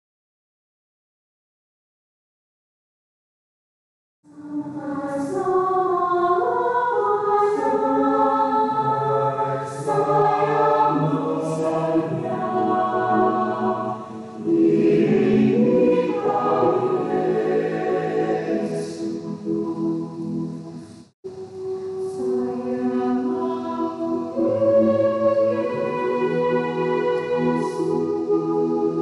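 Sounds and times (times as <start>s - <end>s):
choir singing a hymn: 4.4s - 20.8s, 21.4s - 29.0s.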